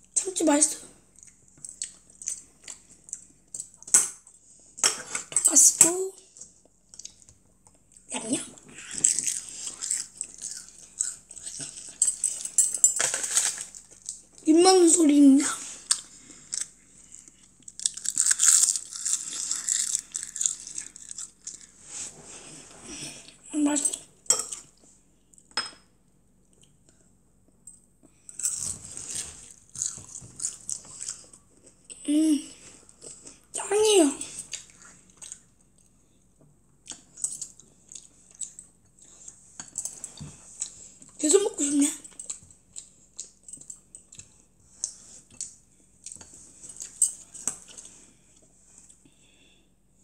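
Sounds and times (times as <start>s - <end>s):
child chewing noisily: 1.1s - 3.8s, 6.3s - 12.6s, 15.6s - 21.9s, 28.1s - 32.0s, 34.4s - 36.1s, 36.8s - 41.2s, 42.1s - 49.1s.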